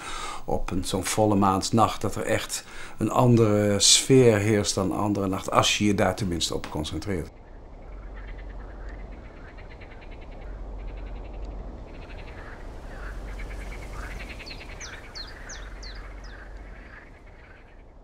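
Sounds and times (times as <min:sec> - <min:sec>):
frogs croaking: 0:04.1 - 0:18.0
high bird chirps: 0:07.3 - 0:18.0.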